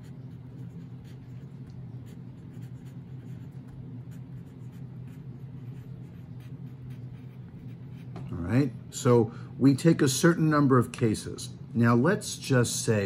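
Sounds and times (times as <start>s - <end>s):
pencil scratching on paper: 0.0s - 8.3s
steady low hum: 0.0s - 13.0s.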